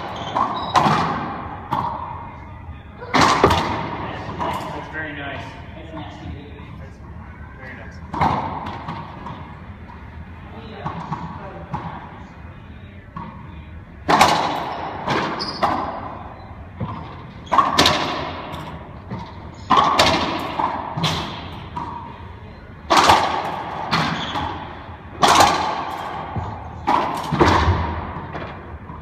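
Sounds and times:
ball hitting court walls: 0.0s - 2.1s, 3.1s - 4.7s, 8.1s - 9.6s, 14.0s - 16.2s, 16.8s - 22.1s, 22.9s - 29.0s
racquets striking ball: 0.0s - 2.3s, 3.1s - 4.8s, 8.0s - 9.8s, 13.1s - 22.2s, 22.8s - 29.0s.

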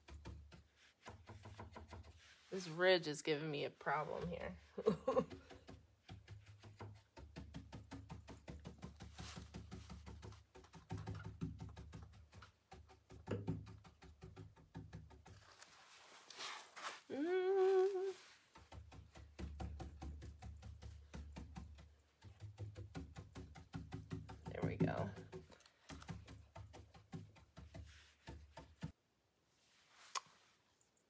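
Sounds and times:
paint brush scrubbing on wood: 0.0s - 11.2s, 15.1s - 29.0s
person humming: 17.1s - 18.2s.

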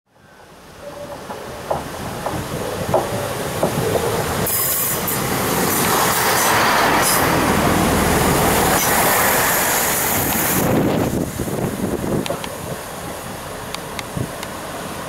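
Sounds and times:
train wheels rumbling on rail: 0.7s - 15.0s
wheels clacking over rail joints: 1.0s - 7.8s.

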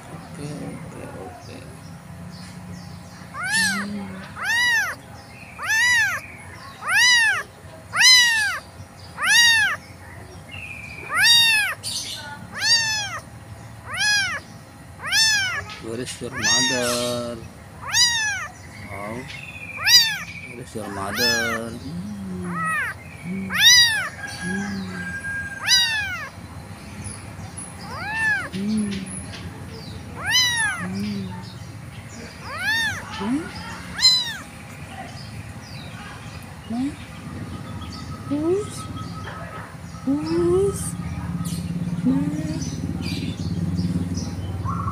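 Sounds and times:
kitten meowing: 3.3s - 5.0s, 5.6s - 6.2s, 6.8s - 8.6s, 9.2s - 9.8s, 11.0s - 11.8s, 12.5s - 13.2s, 13.8s - 14.4s, 15.0s - 26.4s, 27.8s - 29.2s, 30.2s - 31.4s, 32.4s - 34.5s.

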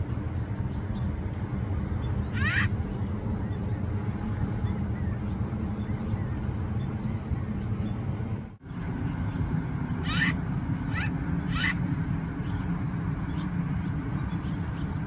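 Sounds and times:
low rumble: 0.0s - 15.0s
woodpecker calls: 2.3s - 2.7s, 10.0s - 11.9s.

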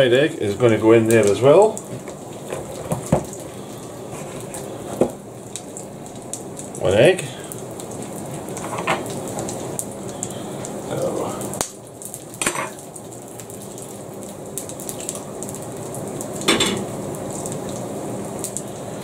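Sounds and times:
oil sizzling in frying pans: 0.0s - 19.0s
egg cracking against pan: 1.8s - 3.5s.

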